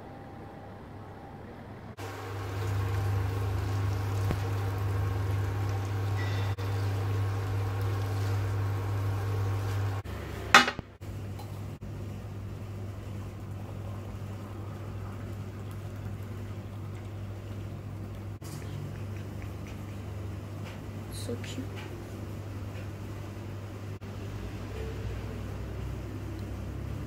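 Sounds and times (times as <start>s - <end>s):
steady electrical hum: 0.0s - 24.4s
food stirred in frying pan: 2.0s - 10.0s.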